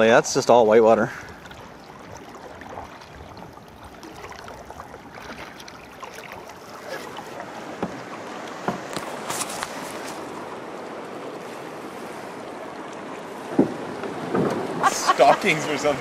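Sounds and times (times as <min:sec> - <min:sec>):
water washing around canoe hull: 0:00.0 - 0:16.0
paddle strokes: 0:01.1 - 0:16.0
sharp knocks or splashes: 0:13.4 - 0:14.9.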